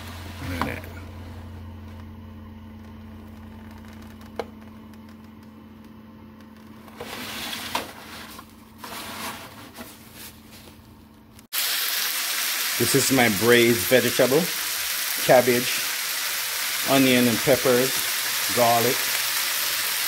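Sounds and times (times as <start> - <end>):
low hum: 0.0 - 11.5.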